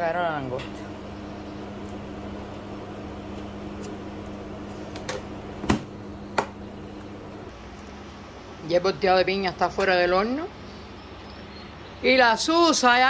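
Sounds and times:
kitchen appliance humming: 0.0s - 7.5s.

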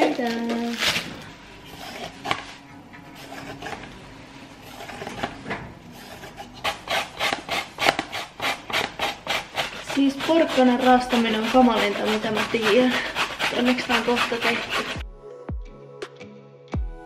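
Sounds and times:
vegetable peeler scraping carrot: 1.7s - 2.5s, 3.1s - 3.9s, 4.6s - 15.0s
carrot grated on metal grater: 5.9s - 15.0s.

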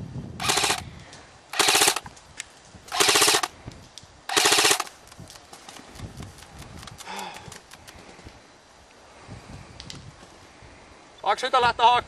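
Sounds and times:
airsoft rifle full-auto bursts: 0.4s - 0.8s, 1.5s - 2.1s, 2.9s - 3.5s, 4.3s - 4.9s.

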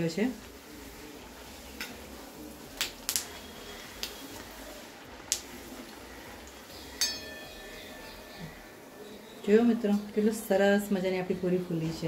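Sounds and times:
oil bubbling and sizzling: 0.0s - 9.4s.

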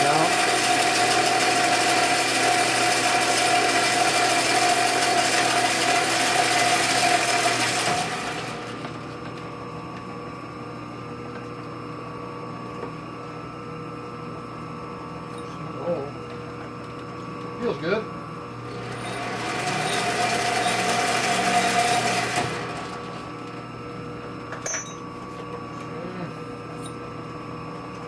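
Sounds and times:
lathe winding down: 0.0s - 8.9s, 18.6s - 23.6s
metal lathe whining: 0.0s - 8.9s, 18.6s - 23.6s
cutting tool and chips hissing: 18.8s - 22.7s.

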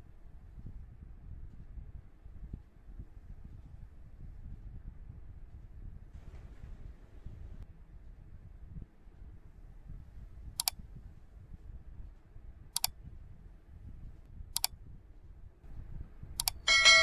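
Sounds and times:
faint low rumble: 0.0s - 17.0s
mouse double click effect: 12.8s - 13.0s, 16.4s - 16.6s.

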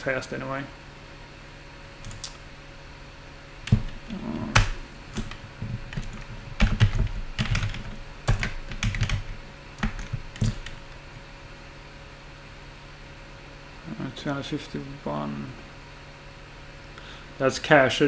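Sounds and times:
typing on computer keyboard: 4.6s - 10.8s.

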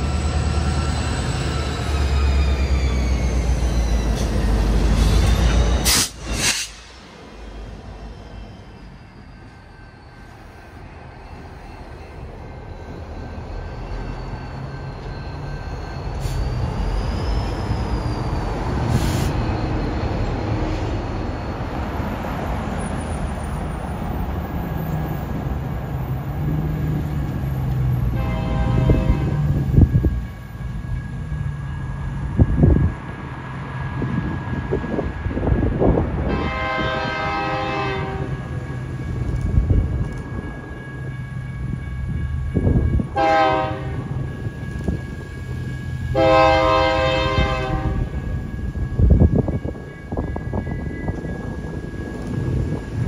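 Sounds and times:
locomotive horn: 28.1s - 29.6s, 36.2s - 38.5s, 43.2s - 44.2s, 46.1s - 48.2s.

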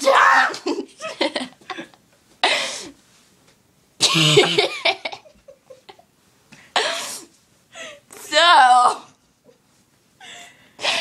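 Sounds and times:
girl coughing: 2.4s - 2.9s, 4.0s - 4.6s, 6.8s - 7.3s.

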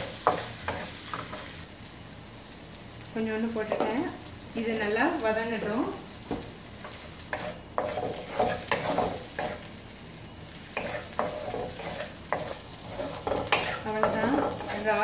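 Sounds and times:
food sizzling in oil: 0.0s - 15.0s
spatula scraping and knocking pan: 6.3s - 9.7s, 10.7s - 15.0s.

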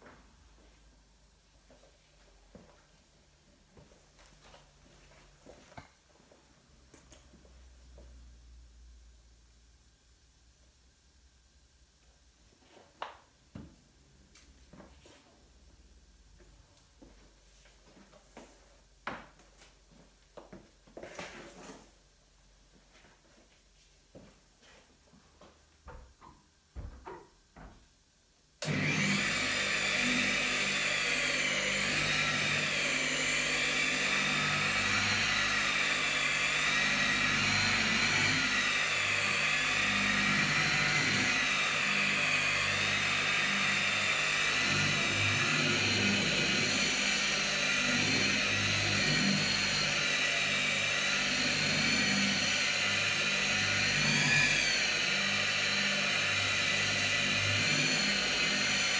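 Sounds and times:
electric polisher motor whine: 28.6s - 58.9s.

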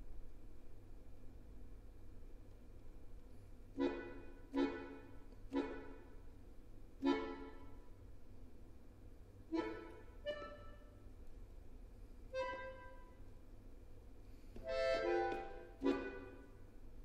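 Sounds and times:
accordion chords: 3.7s - 6.3s, 7.0s - 7.9s, 9.5s - 11.1s, 12.3s - 13.2s, 14.6s - 16.7s.

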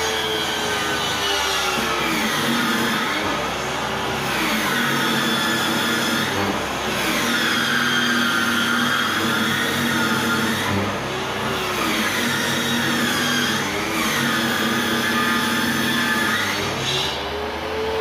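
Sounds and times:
circular saw cutting wood: 0.0s - 18.0s.

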